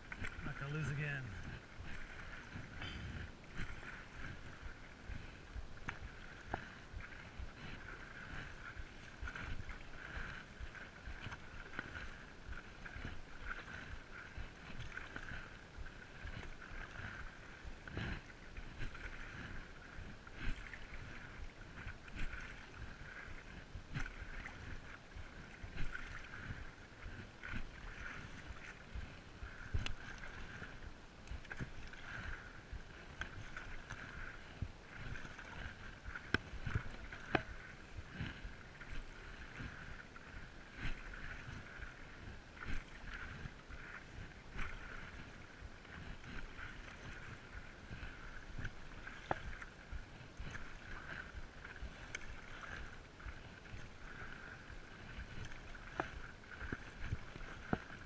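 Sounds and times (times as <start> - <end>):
paddle strokes through water: 0.0 - 58.0
water lapping against board: 0.0 - 58.0.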